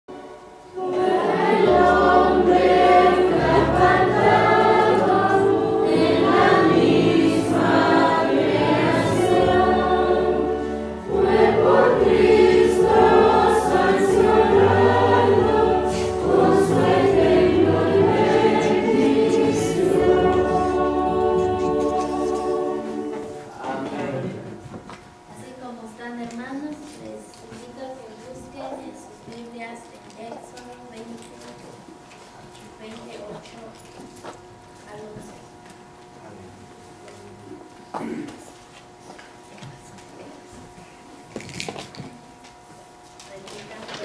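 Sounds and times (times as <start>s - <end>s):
choir singing: 0.1s - 24.5s.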